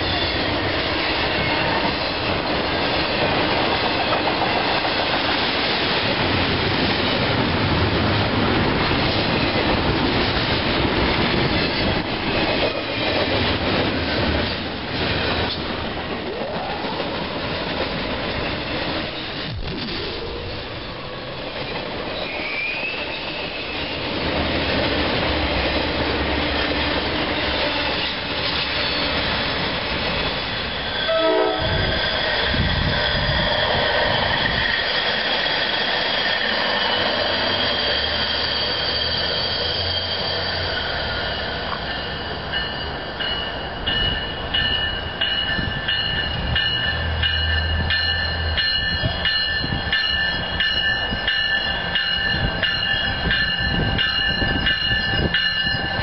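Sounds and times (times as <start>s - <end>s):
railroad cars rolling on rails: 0.0s - 56.0s
high-pitched wheel squealing: 35.3s - 41.8s.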